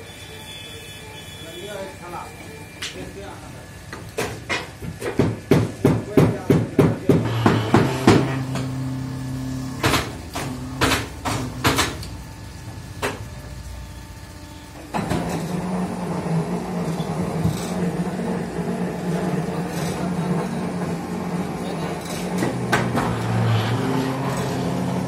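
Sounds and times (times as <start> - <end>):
machine knocks: 4.2 - 8.8, 9.8 - 12.0
brick press clanking: 7.0 - 8.8
hydraulic power pack humming: 7.2 - 25.0.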